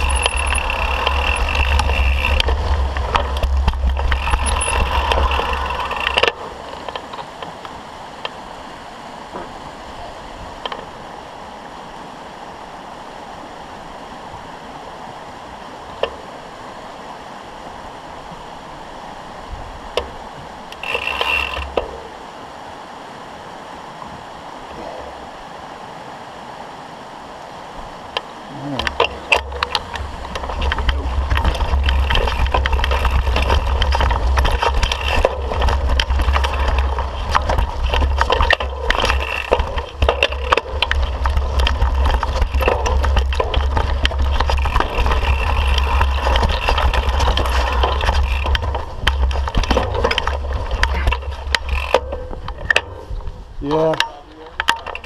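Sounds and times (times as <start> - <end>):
bike rattling over rocks: 0.0 - 7.7, 19.9 - 22.2, 28.8 - 55.0
wind rumble on microphone: 0.0 - 55.0.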